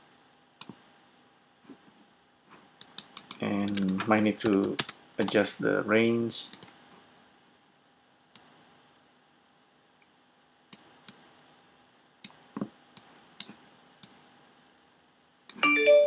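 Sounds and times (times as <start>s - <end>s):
computer mouse clicks: 2.8s - 5.4s, 6.5s - 6.8s, 8.3s - 8.6s, 10.7s - 11.3s, 13.0s - 14.2s.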